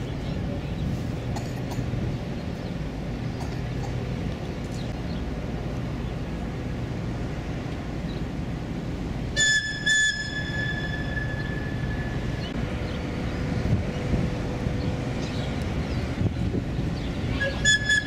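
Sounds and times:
steady low rumble: 0.0s - 18.0s
high-pitched whistle blasts: 9.4s - 12.2s, 17.4s - 18.0s.

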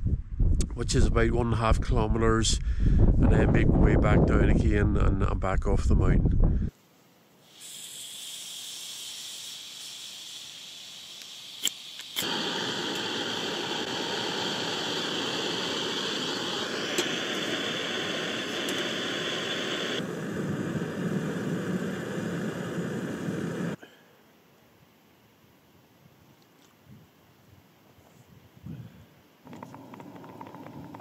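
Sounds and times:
gas hissing from valve: 7.4s - 23.8s
gas burner roaring: 7.6s - 23.8s, 29.4s - 31.0s
stove igniter click: 11.2s - 20.0s.

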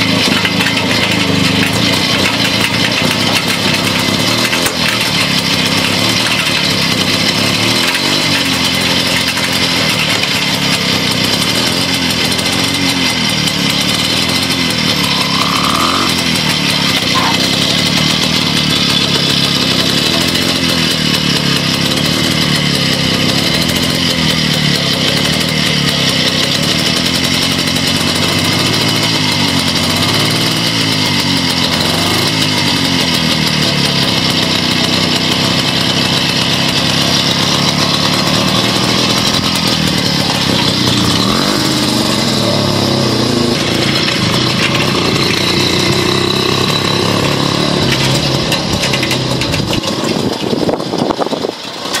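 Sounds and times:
motorcycle engine idling and revving: 0.0s - 52.0s
motorcycle pulling away: 0.0s - 52.0s.

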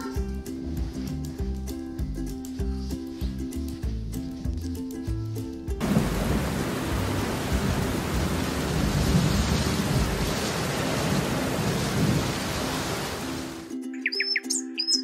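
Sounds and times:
heavy rain: 5.8s - 13.7s
thunder rumbling: 5.8s - 13.7s.

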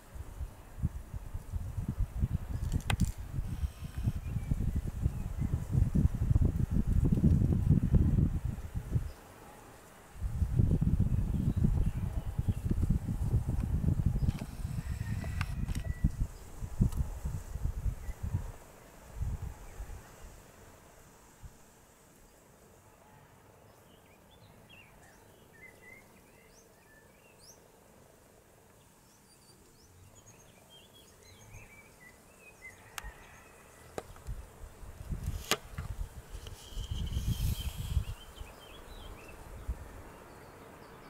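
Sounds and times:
small birds chirping: 23.7s - 27.7s, 28.7s - 41.0s.

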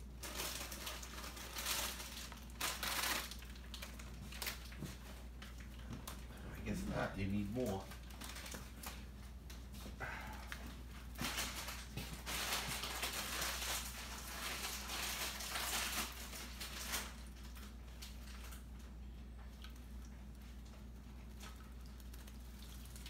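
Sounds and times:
bird wings splashing water: 21.2s - 23.0s.

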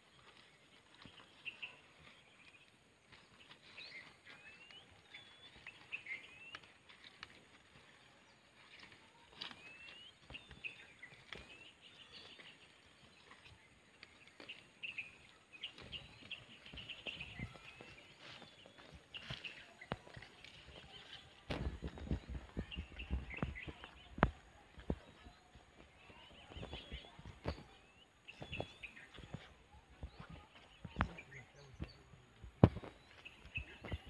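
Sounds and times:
birds chirping: 0.0s - 34.0s
rustling of leafy plants: 0.0s - 34.0s.

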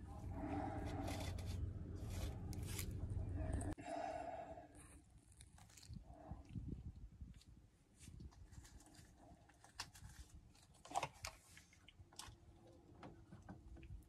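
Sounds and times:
low room rumble: 0.0s - 10.6s.

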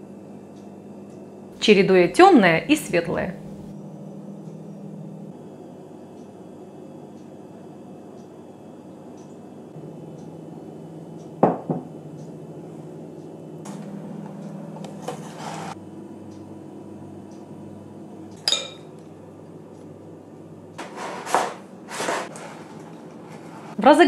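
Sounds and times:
steady low hum: 0.0s - 24.0s
spoon clinking against pans and bowls: 18.4s - 18.9s.

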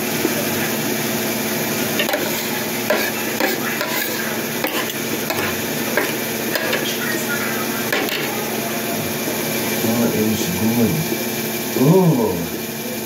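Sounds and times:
cutlery scraping on plate: 2.0s - 7.0s, 7.9s - 8.4s.

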